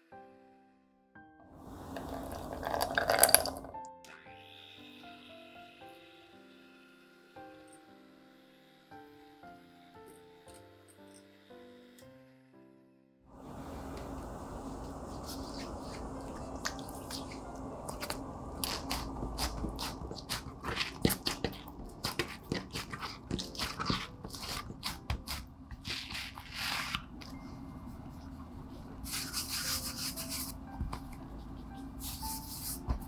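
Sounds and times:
brushing swishes: 14.4 - 17.6, 27.8 - 33.0
utensils tapping and clicking: 16.3 - 25.9.

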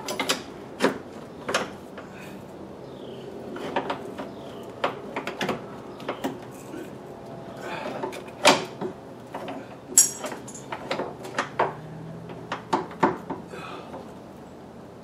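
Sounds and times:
hand tools clinking on metal: 10.0 - 10.8.

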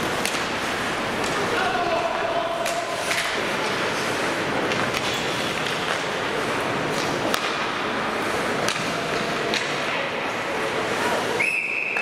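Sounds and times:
hockey sticks and puck clacking: 0.0 - 12.0
skates on ice: 0.0 - 12.0
voices: 1.2 - 3.9
referee's whistle: 11.4 - 12.0.

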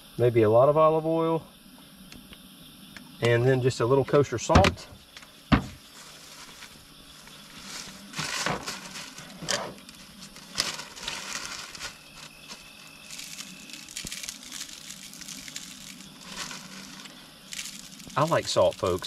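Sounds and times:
bag rustling and crinkling: 5.6 - 19.0
salt sprinkled by hand: 10.4 - 19.0.

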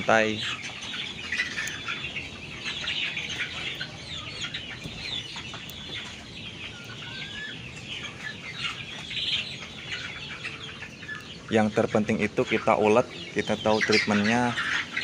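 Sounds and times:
chickens clucking and peeping: 0.0 - 15.0.

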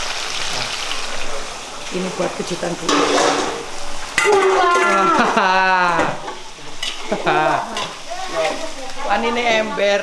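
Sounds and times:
food sizzling in a wok: 0.0 - 10.0
metal spatula stirring: 2.8 - 5.0, 6.2 - 8.7.

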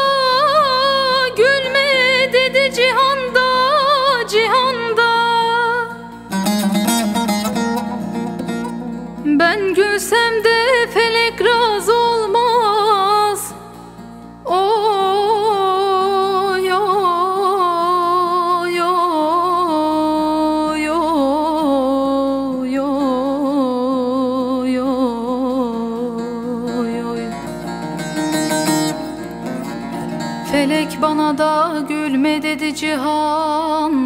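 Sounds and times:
plucked lute melody: 0.0 - 19.2, 25.4 - 32.9
tremolo strumming: 0.0 - 20.7, 22.3 - 34.0.

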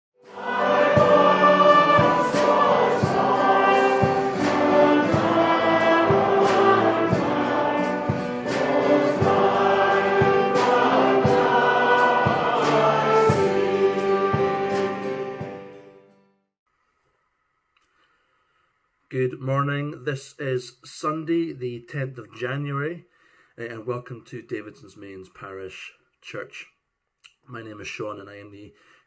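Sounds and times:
choir singing: 0.2 - 15.6
instrumental accompaniment with beat: 0.2 - 15.8.

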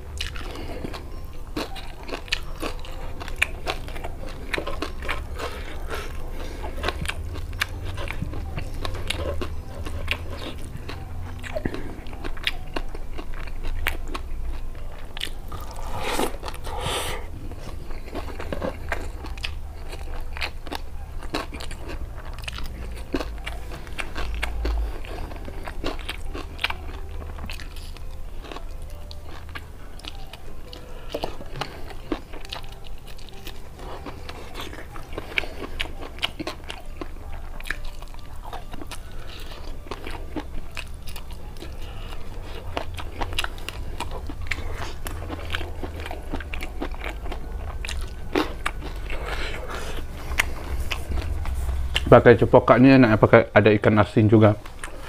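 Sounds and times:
chewing and crunching food: 0.0 - 55.0.

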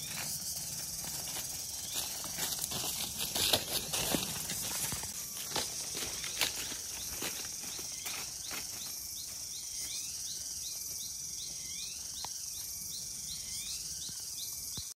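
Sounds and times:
footsteps on leaf litter: 0.0 - 10.1
insects buzzing: 0.0 - 15.0.

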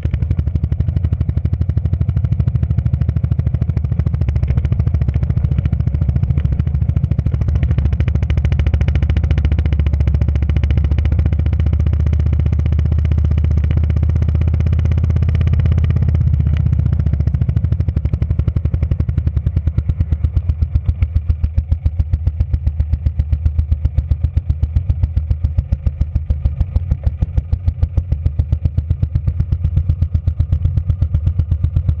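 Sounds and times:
motorcycle engine running: 0.0 - 32.0.

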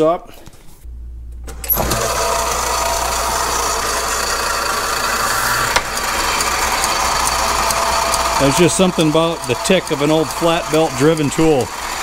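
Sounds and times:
belt-driven lathe running: 1.6 - 12.0
belt joint ticking: 5.8 - 12.0.

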